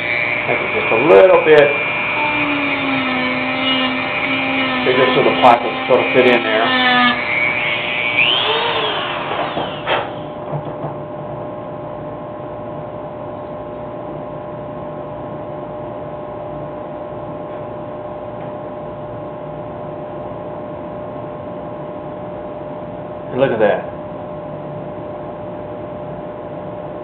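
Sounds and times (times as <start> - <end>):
rotary tool whining into wood: 0.0 - 10.5
steady motor hum: 0.0 - 27.0.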